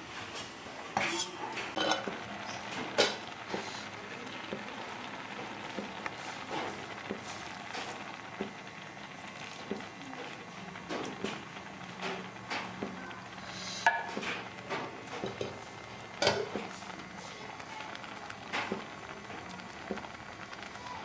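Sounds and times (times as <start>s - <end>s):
metal spoon stirring a pot: 1.0s - 4.0s
stew bubbling and popping: 1.6s - 21.0s.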